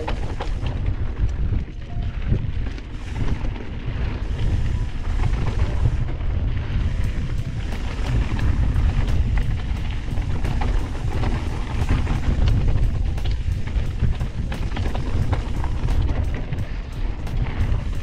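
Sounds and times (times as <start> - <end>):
bike rattling: 0.0 - 18.0
wind on microphone: 0.0 - 18.0
tyres rolling on dirt: 2.5 - 18.0
sharp ticks: 7.0 - 18.0.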